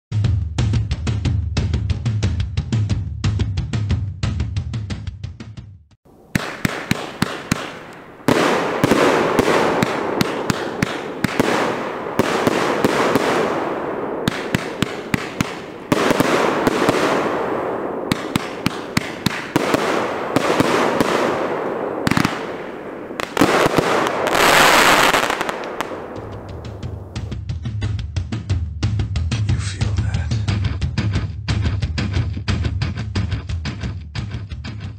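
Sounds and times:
continuous hiss: 6.1s - 27.3s
firework cake shots and bursts: 6.3s - 26.8s.

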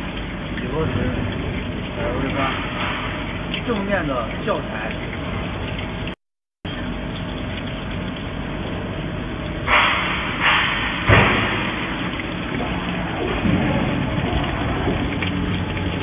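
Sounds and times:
thump: 11.0s - 11.7s.

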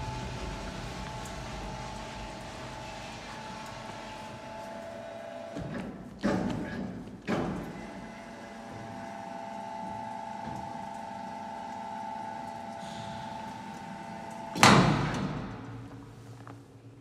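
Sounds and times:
grinder motor humming and whining: 7.7s - 14.6s.

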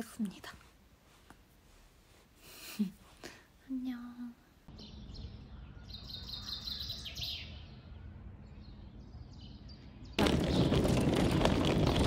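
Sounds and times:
small birds chirping: 3.6s - 11.0s.

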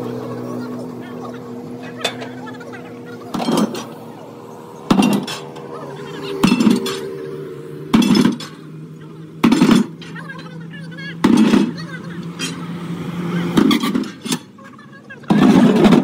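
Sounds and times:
steel leaf springs clanking: 1.8s - 2.6s, 3.2s - 4.0s, 4.9s - 7.2s, 7.9s - 8.7s, 11.2s - 12.7s, 13.6s - 14.6s.

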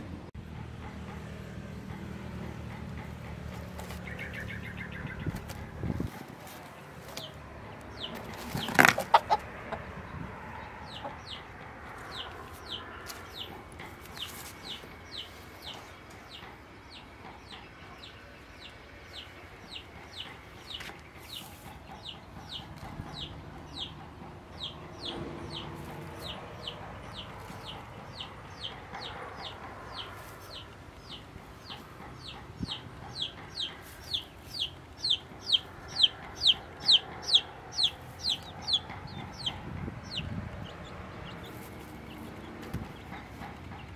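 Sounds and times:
chickens clucking: 0.4s - 43.9s.

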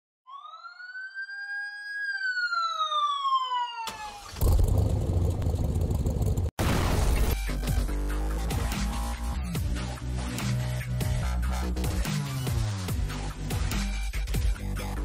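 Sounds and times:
siren-like sweeping tone: 0.3s - 4.4s
electronic music with heavy bass: 7.1s - 15.0s.

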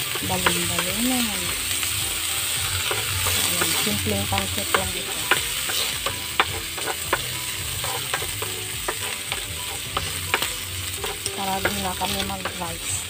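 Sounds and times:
food sizzling in oil in a pan: 0.0s - 13.0s
spatula clicking against pan: 4.7s - 12.6s.

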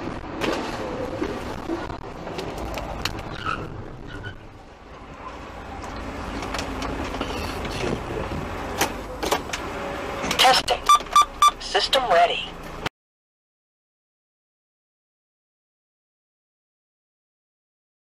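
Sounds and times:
car road and engine rumble: 0.0s - 12.9s.

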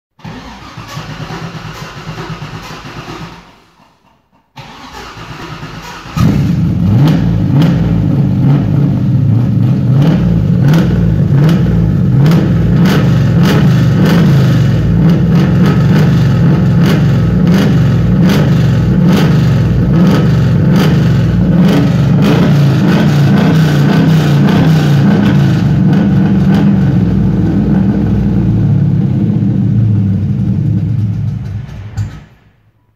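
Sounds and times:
car engine running loudly: 6.2s - 32.3s.

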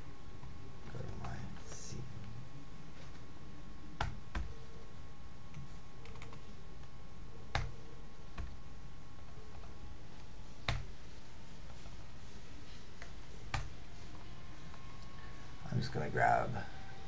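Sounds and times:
steady background hiss: 0.0s - 17.0s
computer keyboard keystrokes: 5.5s - 6.4s.

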